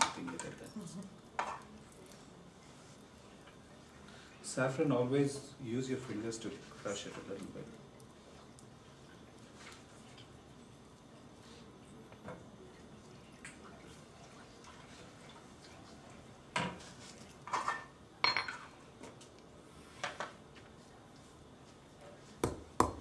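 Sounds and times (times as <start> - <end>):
kitchenware clinking and knocking: 17.5 - 18.7.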